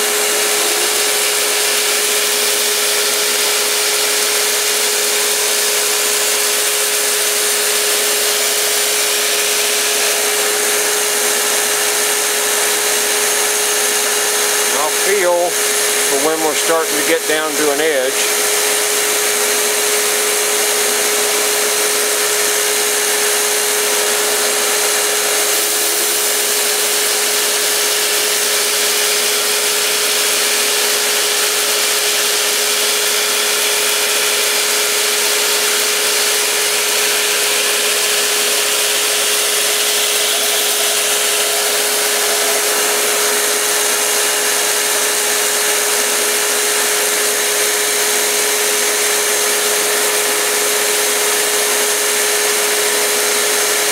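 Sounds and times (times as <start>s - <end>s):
belt grinder running: 0.0s - 53.9s.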